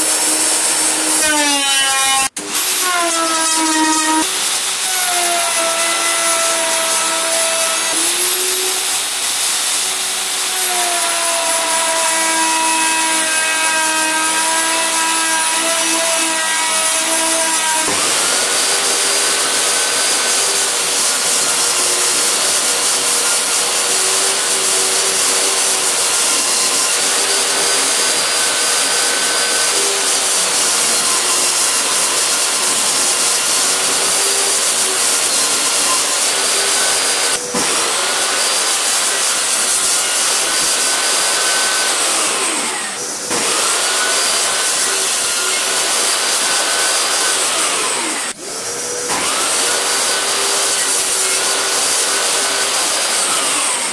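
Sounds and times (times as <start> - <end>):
table saw cutting wood: 0.0 - 53.9.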